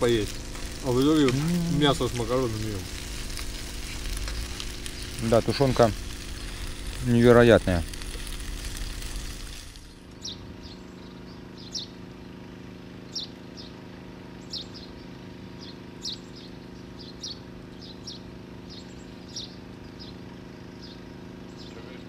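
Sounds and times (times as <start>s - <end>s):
steady hiss: 0.0s - 10.2s
steady low hum: 0.0s - 22.0s
bird chirping: 10.1s - 12.0s, 13.0s - 13.8s, 14.4s - 22.0s.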